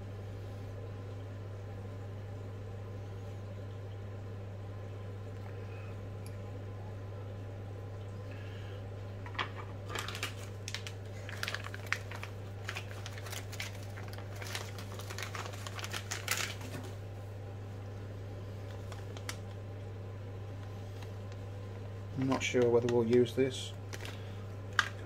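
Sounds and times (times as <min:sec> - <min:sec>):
plastic bag crinkling: 0:09.5 - 0:17.0, 0:18.6 - 0:19.6, 0:22.2 - 0:25.0.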